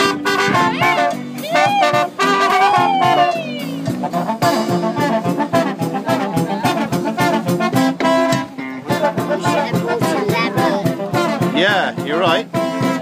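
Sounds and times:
drums: 0.0 - 13.0
guitar: 0.0 - 13.0
saxophone: 0.0 - 13.0
trumpets: 0.0 - 13.0.

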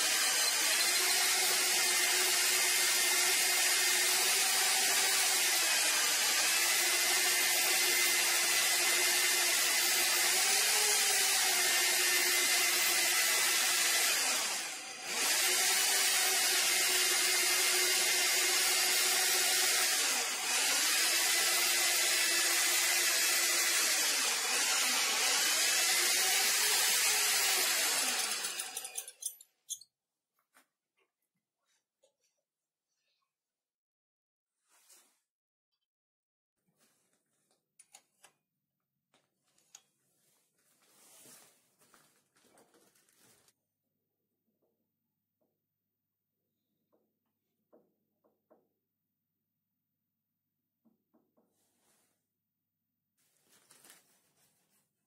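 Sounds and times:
drill motor whining: 0.0 - 29.4.

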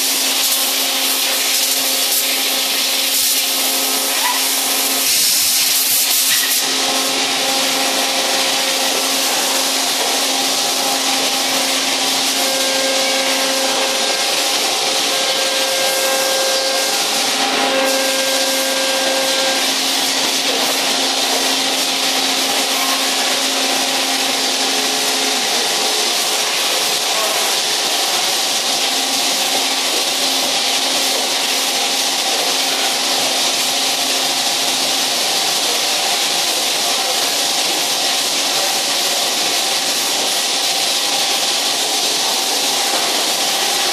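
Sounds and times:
machining centres running: 1.8 - 43.9.

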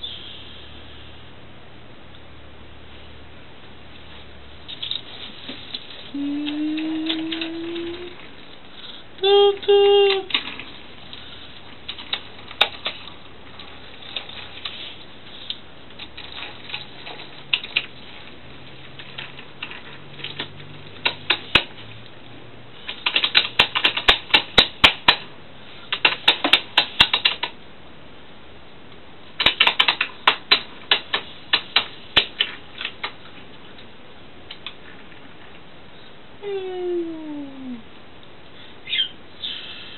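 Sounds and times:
plastic toy train clicks: 22.9 - 25.2, 25.9 - 27.6, 29.4 - 33.2.

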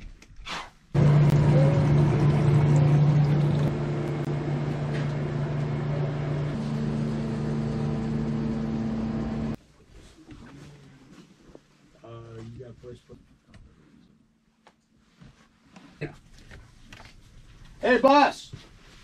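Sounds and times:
higher steady tone: 1.0 - 9.6
low mechanical hum: 1.0 - 9.6.

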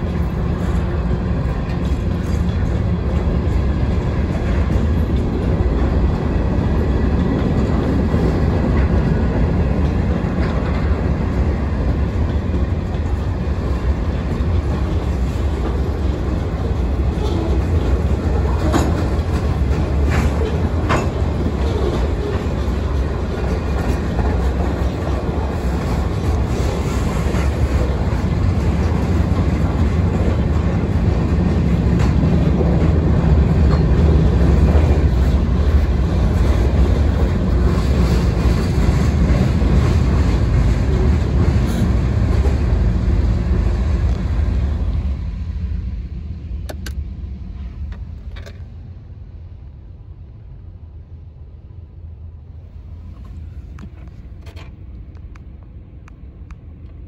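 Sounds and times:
freight cars rumbling on rails: 0.0 - 57.0.

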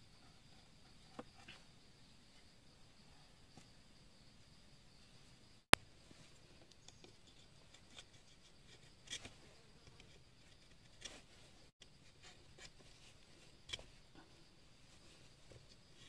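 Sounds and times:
knife scraping bamboo: 6.8 - 14.0.

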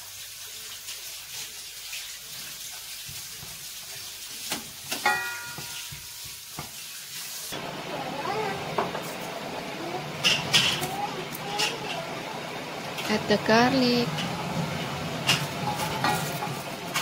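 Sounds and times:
ginger sizzling in oil: 0.0 - 17.0.

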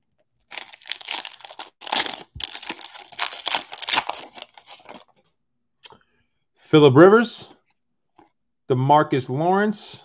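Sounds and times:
wrapper tearing and crinkling: 0.5 - 5.2.

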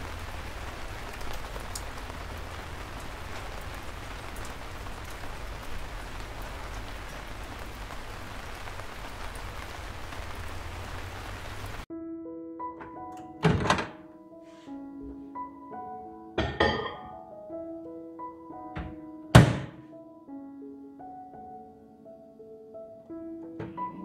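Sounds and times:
rain falling: 0.0 - 11.9.

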